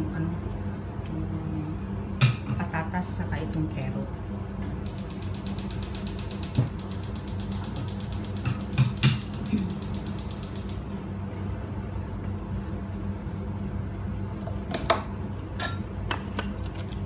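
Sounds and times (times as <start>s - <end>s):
steady low hum: 0.0s - 17.0s
gas stove igniter clicking: 4.8s - 10.8s.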